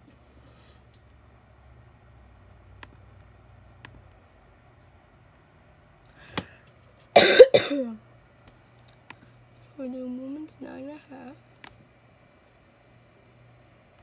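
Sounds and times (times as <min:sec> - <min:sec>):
person coughing: 0:07.2 - 0:08.0.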